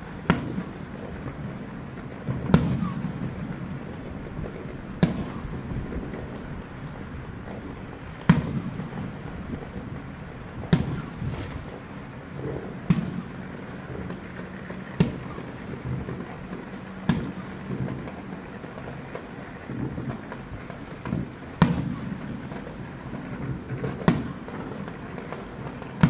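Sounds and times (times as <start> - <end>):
firework bangs: 0.0 - 26.0
rolling echo rumble: 0.0 - 26.0.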